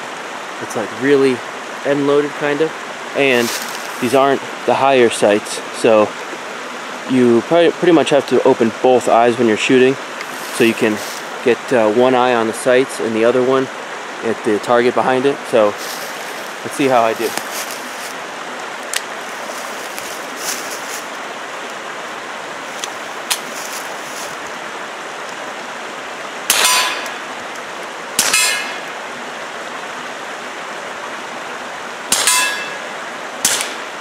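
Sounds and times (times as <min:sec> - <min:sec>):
suppressed pistol shots: 0:33.4 - 0:33.8.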